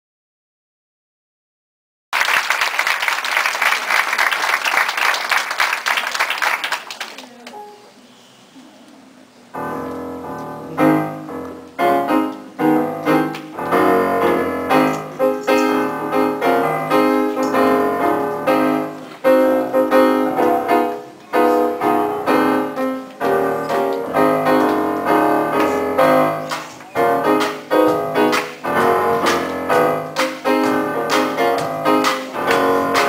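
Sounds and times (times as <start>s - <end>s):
piano chords: 9.5s - 33.0s.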